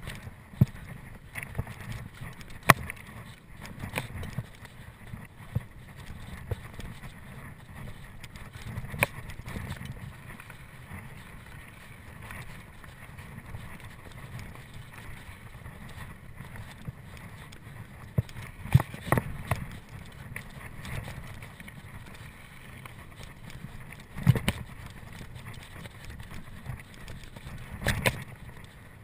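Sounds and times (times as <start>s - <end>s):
bike knocks and rattles: 0.0s - 22.2s.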